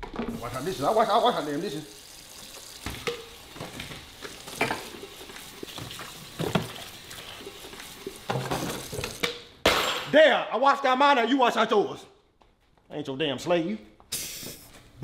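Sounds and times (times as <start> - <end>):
faucet running into a sink: 0.3 - 9.3
dishes clinking and knocking: 2.9 - 5.2, 8.2 - 10.1.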